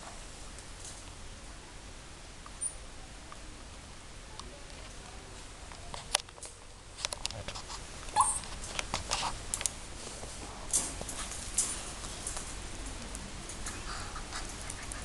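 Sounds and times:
puppy squeak: 8.2 - 8.5.

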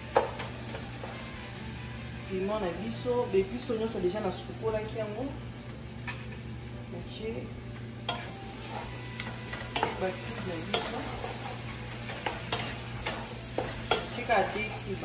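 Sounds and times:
greens sizzling: 0.0 - 15.0
wooden spoon scraping a pot: 10.7 - 15.0.

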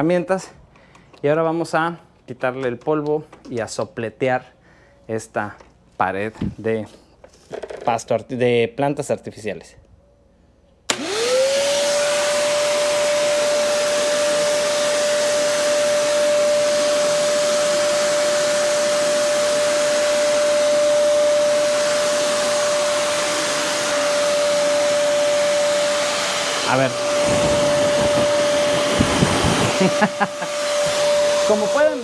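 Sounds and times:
vacuum motor whine: 10.9 - 32.0
air rushing from hose: 25.5 - 32.0.

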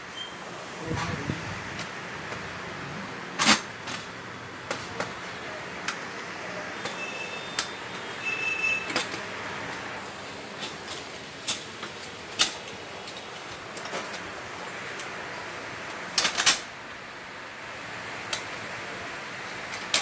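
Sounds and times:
brief high squeak: 0.1 - 0.4.

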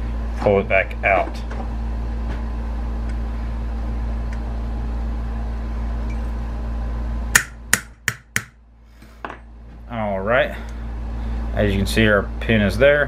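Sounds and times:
steady hum: 0.0 - 13.0
hammer tapping metal punch: 7.4 - 8.6.

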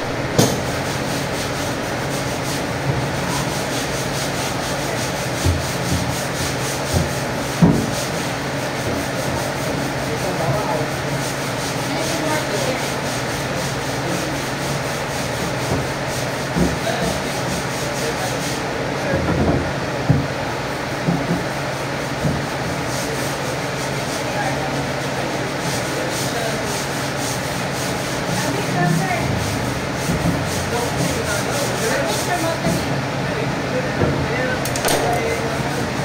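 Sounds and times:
low hum: 0.0 - 2.2.

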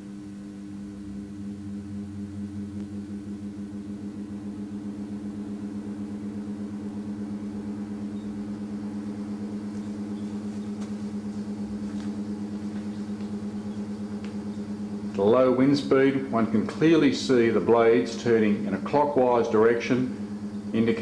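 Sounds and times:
electric blower humming: 0.0 - 21.0
faint ticks: 9.7 - 15.3.

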